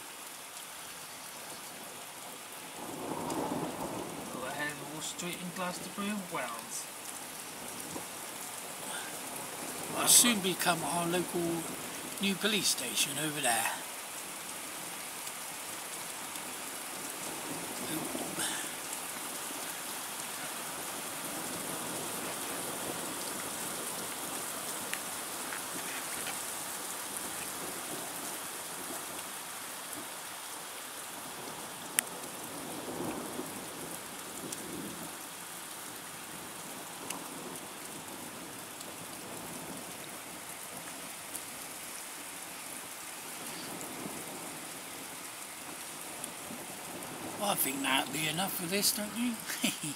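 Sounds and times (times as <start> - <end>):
rain on tarmac: 0.0 - 49.9
distant thunder rumbles: 2.8 - 12.4, 16.0 - 26.3.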